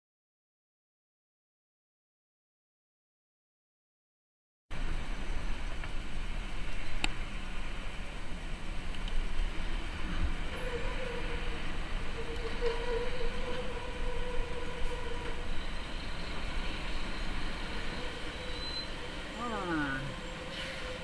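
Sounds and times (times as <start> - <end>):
traffic road noise: 4.7 - 21.0.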